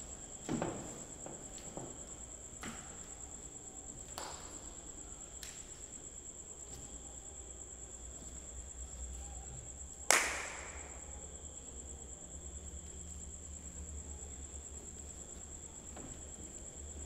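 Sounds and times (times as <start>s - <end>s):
loud sharp knock: 10.1s - 11.0s.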